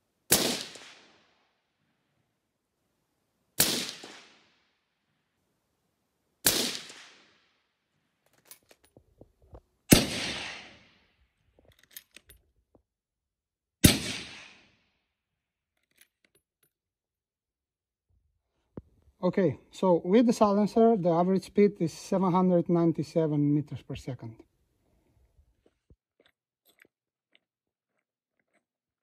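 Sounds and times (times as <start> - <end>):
suppressed rifle shots: 0.3 - 1.2, 3.6 - 4.6, 6.4 - 7.4, 9.9 - 11.0, 13.8 - 14.8.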